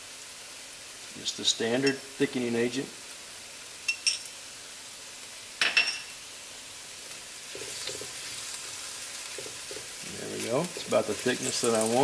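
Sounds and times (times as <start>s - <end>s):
sauce bubbling and sizzling: 0.0s - 12.0s
spatula stirring food: 7.1s - 12.0s.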